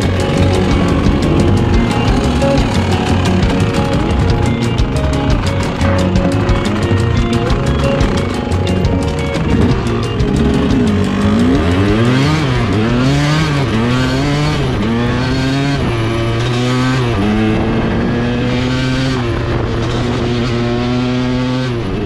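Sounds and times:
two-stroke motorcycle engine revving: 0.0s - 22.0s.

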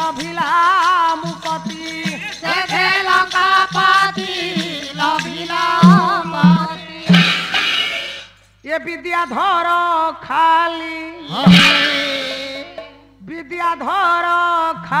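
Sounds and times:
man singing: 0.0s - 7.6s, 8.6s - 15.0s
percussion accompaniment: 0.0s - 8.6s, 11.2s - 13.4s, 14.7s - 15.0s
woman singing: 2.4s - 7.6s.

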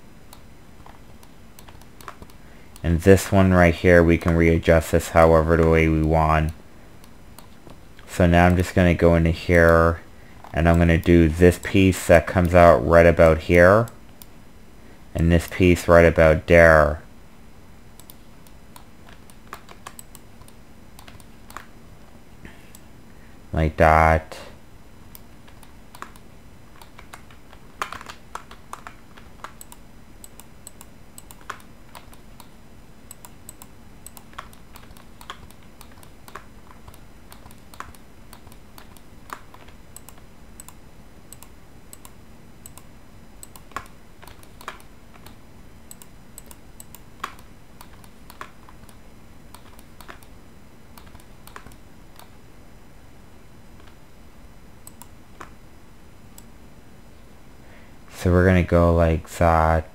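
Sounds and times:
faint steady hum: 0.0s - 59.9s
keyboard keys clicking: 0.3s - 2.4s, 33.1s - 50.3s.

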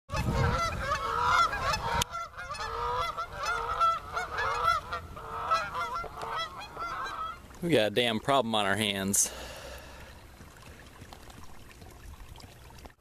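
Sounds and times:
geese honking: 0.1s - 7.5s.

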